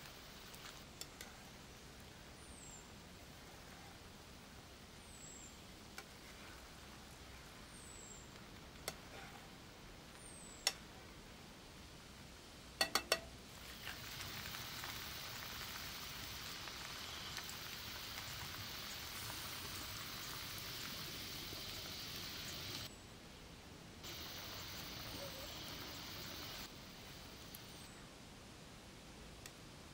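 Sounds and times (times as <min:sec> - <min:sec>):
food sizzling in a pan: 0:00.0 - 0:00.8, 0:13.5 - 0:22.9, 0:24.0 - 0:27.8
tongs clicking on metal pan: 0:12.8 - 0:13.3.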